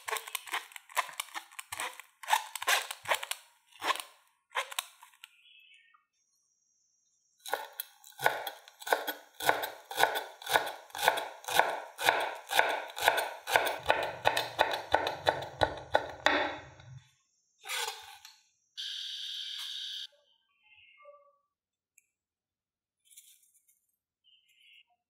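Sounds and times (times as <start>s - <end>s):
knife chopping on wooden board: 7.5s - 16.6s.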